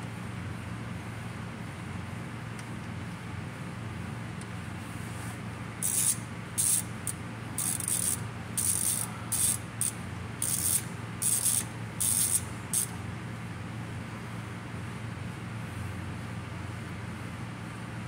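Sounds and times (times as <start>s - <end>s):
ratchet wrench clicking: 5.8s - 13.0s.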